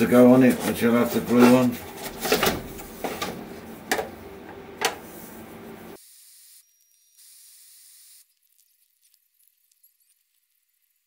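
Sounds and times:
steady hiss: 0:05.1 - 0:11.0.

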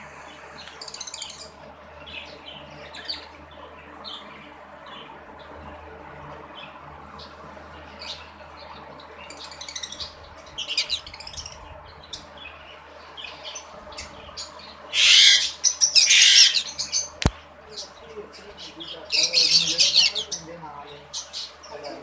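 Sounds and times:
parrots chirping and screeching: 0:09.2 - 0:12.6, 0:13.2 - 0:22.0.

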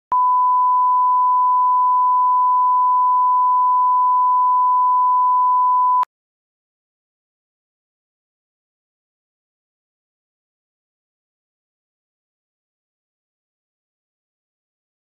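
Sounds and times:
steady pure reference beep: 0:00.1 - 0:06.1.

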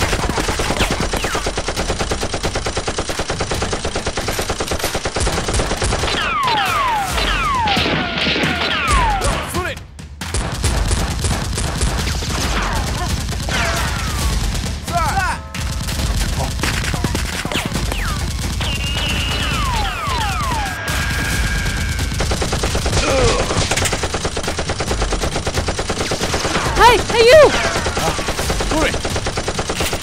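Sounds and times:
automatic gunfire: 0:00.0 - 0:09.3, 0:10.3 - 0:30.0
falling whistles: 0:18.6 - 0:21.8.

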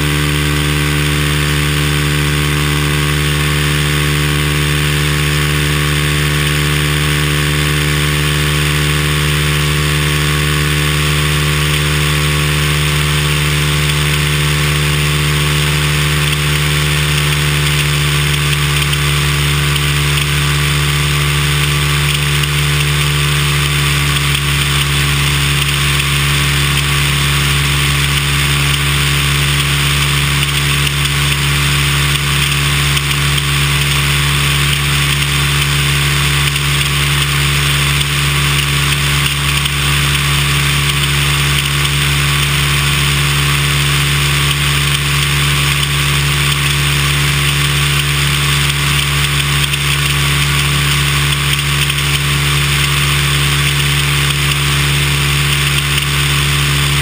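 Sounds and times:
light aircraft engine and propeller: 0:00.0 - 0:57.0.

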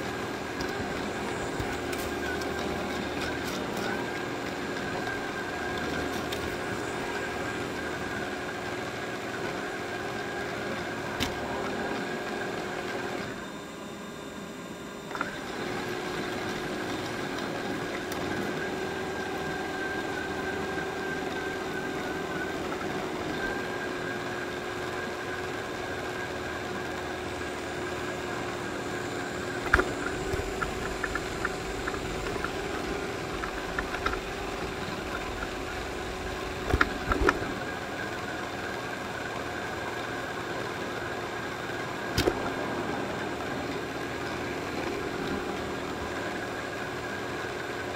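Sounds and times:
robot vacuum whirring: 0:00.0 - 0:14.1, 0:15.0 - 0:38.8.

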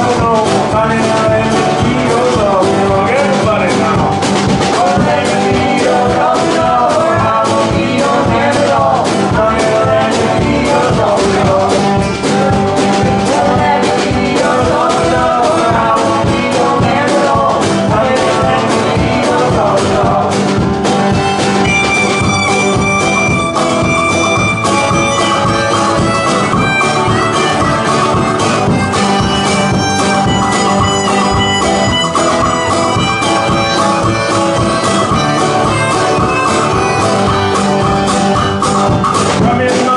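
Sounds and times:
acoustic band playing bluegrass: 0:00.0 - 0:39.9
harmonica melody: 0:00.0 - 0:39.9
woman singing: 0:04.8 - 0:20.3.

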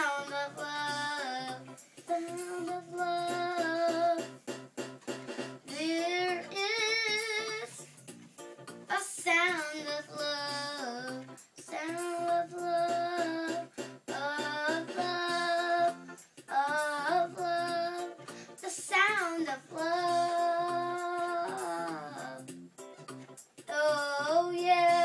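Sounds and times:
girl singing: 0:00.0 - 0:04.4, 0:05.7 - 0:07.9, 0:08.9 - 0:22.5, 0:23.7 - 0:25.0
electronic keyboard notes: 0:00.0 - 0:09.0, 0:19.6 - 0:25.0.

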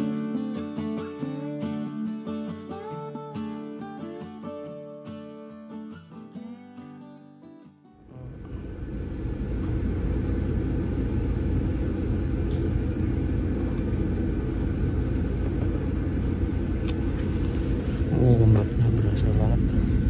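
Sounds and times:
ship low rumble: 0:08.1 - 0:20.0
person speaking: 0:18.0 - 0:19.9.

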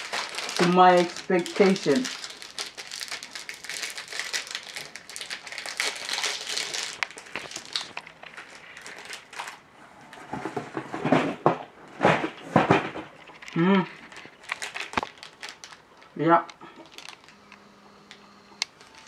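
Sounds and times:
foil pouch crinkling: 0:00.0 - 0:09.6, 0:13.2 - 0:17.4.

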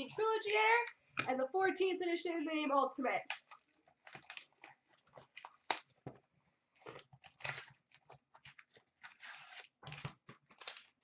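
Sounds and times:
cardboard and plastic wrap crinkling: 0:03.4 - 0:11.0.

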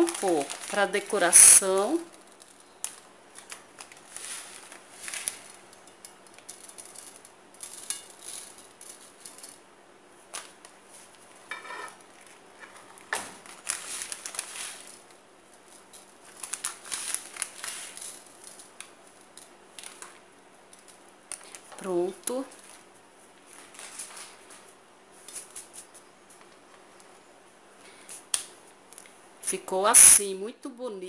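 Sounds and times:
plastic packet crinkling: 0:00.0 - 0:09.6, 0:12.0 - 0:25.9
sprinkles rustling and tapping: 0:00.0 - 0:27.2.

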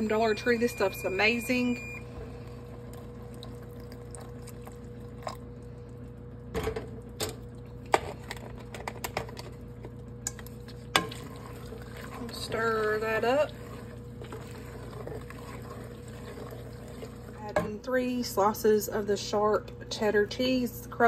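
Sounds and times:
steady hum: 0:00.0 - 0:21.0
milk pouring into pot: 0:02.3 - 0:06.2, 0:10.6 - 0:17.4.

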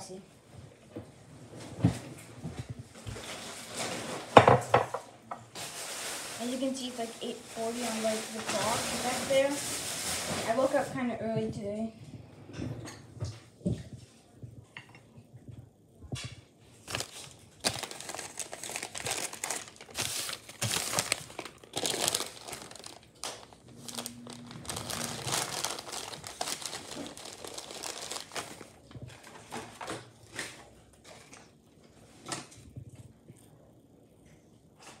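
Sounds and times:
plastic packaging crinkling: 0:05.6 - 0:10.9, 0:16.8 - 0:31.6.

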